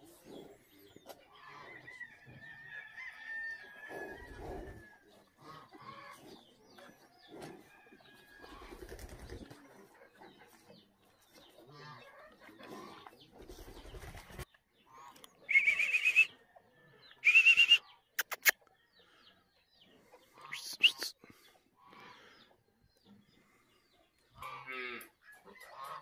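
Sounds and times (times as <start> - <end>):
wavering high-pitched bird calls: 15.4 - 16.4, 17.2 - 18.5
sharp clicks: 18.2 - 18.6.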